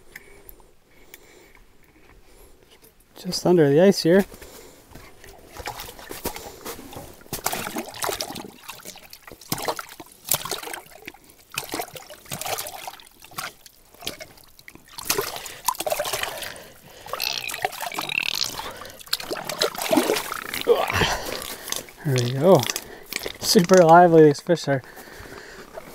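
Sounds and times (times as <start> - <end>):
water sloshing and splashing: 4.9 - 25.9.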